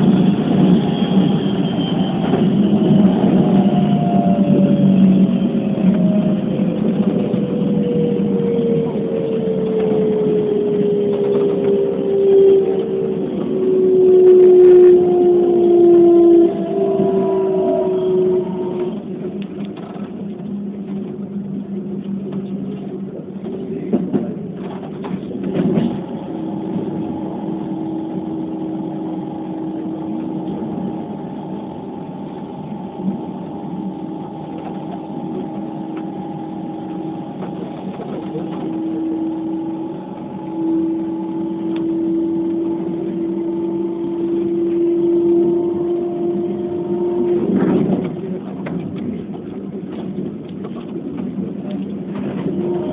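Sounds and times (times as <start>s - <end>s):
train wheels rumbling on track: 0.0s - 52.9s
electric motor whine: 2.5s - 19.4s, 26.3s - 48.0s.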